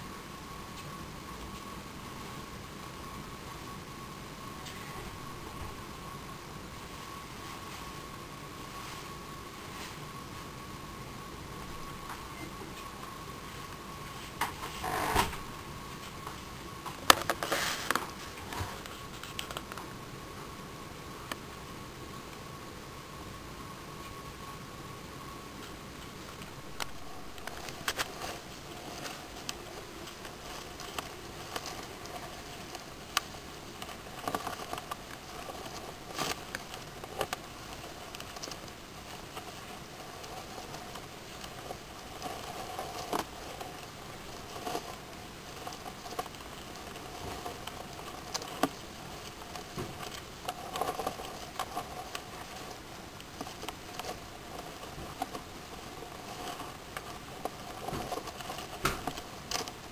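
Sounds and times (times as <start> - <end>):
faint steady hiss: 0.0 - 59.9.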